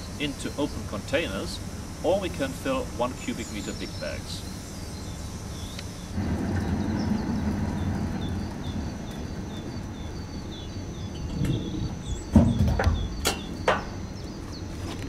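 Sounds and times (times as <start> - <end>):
diesel engine humming: 0.0 - 15.0
sharp metallic clunks: 11.1 - 14.0.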